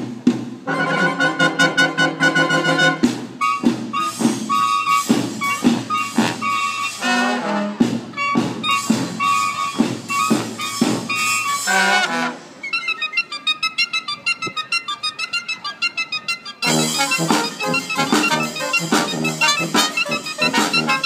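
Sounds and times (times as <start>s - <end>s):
drum strokes: 0.0s - 12.0s, 16.6s - 21.0s
brass band playing a march: 0.0s - 21.0s.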